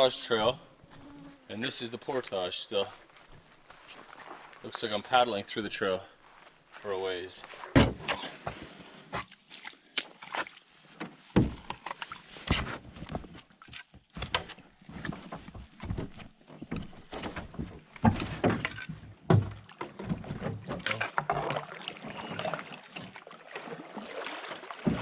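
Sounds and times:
paddle and hull scraping branches: 0.0 - 5.1, 10.3 - 15.8
paddle strokes splashing: 3.0 - 5.0, 20.8 - 25.0.

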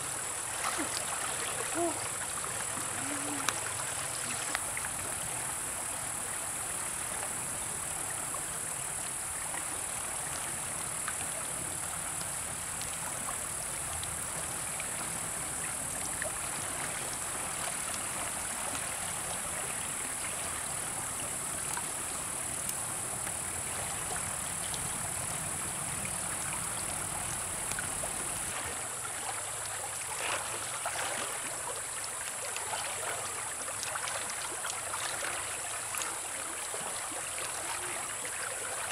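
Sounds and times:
steady high hiss: 0.0 - 28.9.

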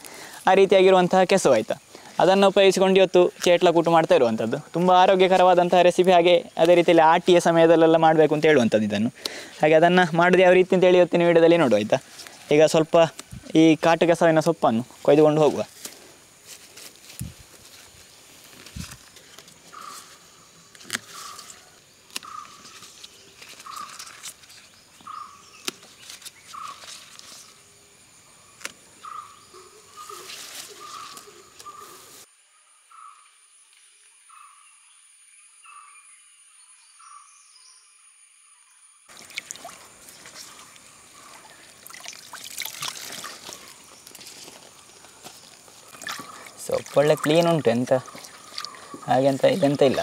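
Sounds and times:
shallow stream trickling: 0.0 - 28.0, 39.1 - 50.0
leaves rustling and crackling: 0.0 - 32.3, 39.1 - 50.0.

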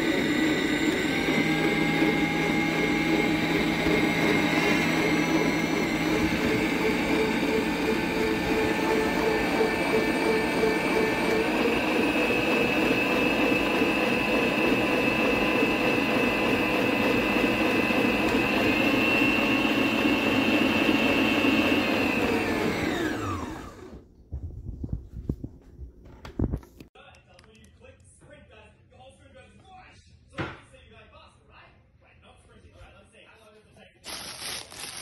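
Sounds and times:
motor whine spinning down: 0.0 - 24.0
stand mixer running: 0.0 - 24.0.

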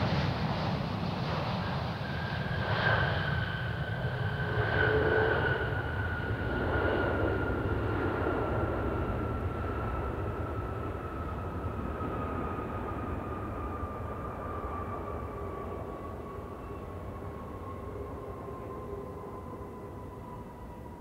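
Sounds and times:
jet engine roar and rumble: 0.0 - 21.0
jet engine whine: 0.0 - 21.0.

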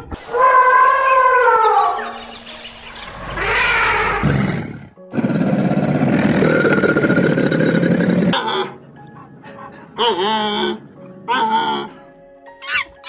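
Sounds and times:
elephant harsh roar: 3.4 - 8.5
elephant calling: 9.6 - 12.0, 12.6 - 13.0.

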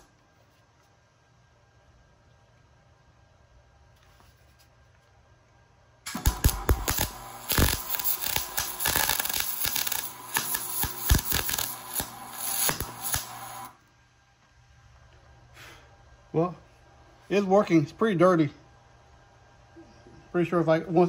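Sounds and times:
welder arc crackling and popping: 6.0 - 13.8.

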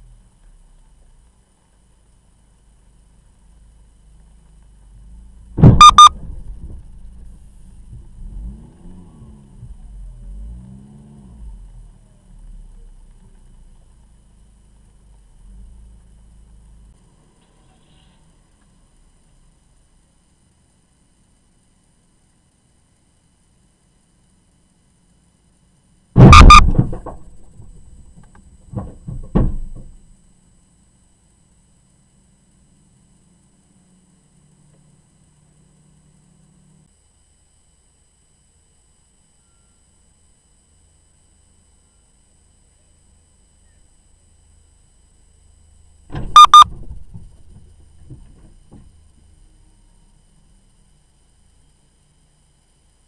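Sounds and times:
car engine running: 0.0 - 17.6
short high electronic beeps: 5.6 - 6.3, 26.2 - 26.8, 46.4 - 46.7
loud car collision impact: 5.6 - 8.1, 26.2 - 30.0, 46.1 - 48.9
short rattle: 26.2 - 30.1.

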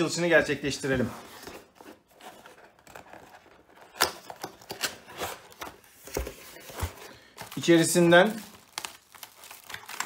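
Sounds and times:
cardboard scraping and tapping: 1.3 - 7.1.

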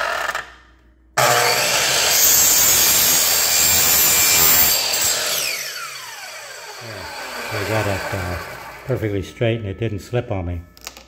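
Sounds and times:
miter saw cutting plastic trim: 1.2 - 9.1
saw motor winding down whine: 1.2 - 9.9.

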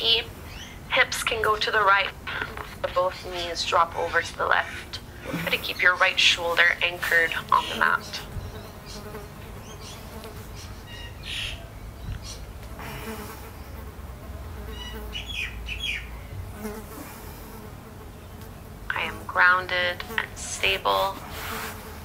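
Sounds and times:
insect buzzing: 5.2 - 11.3, 12.7 - 22.0
high bird chirps: 10.6 - 12.5, 14.7 - 16.1.

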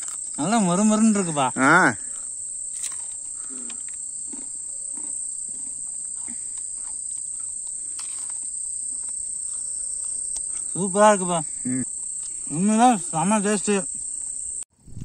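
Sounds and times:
crunchy chewing: 0.0 - 0.5, 2.0 - 10.8, 11.8 - 12.5
crickets chirping: 0.0 - 15.0.

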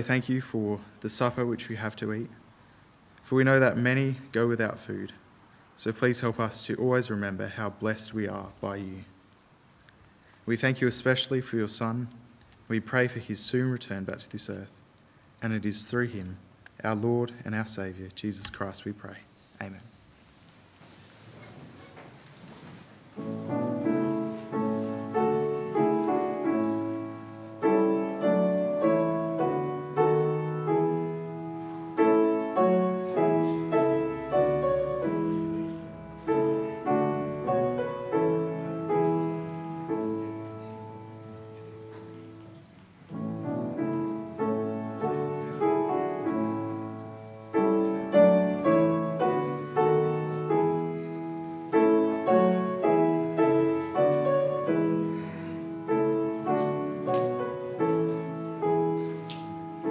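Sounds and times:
solo piano piece: 21.4 - 59.9.

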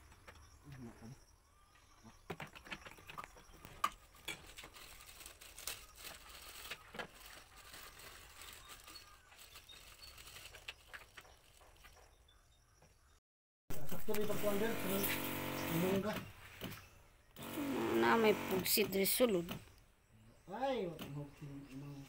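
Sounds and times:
plastic bag crinkling: 4.0 - 12.0.

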